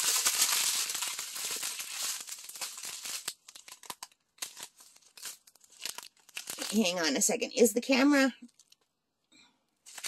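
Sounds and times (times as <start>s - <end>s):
beads rattling in plastic bags: 0.0s - 7.1s
plastic crinkling: 0.0s - 7.3s, 8.4s - 8.9s.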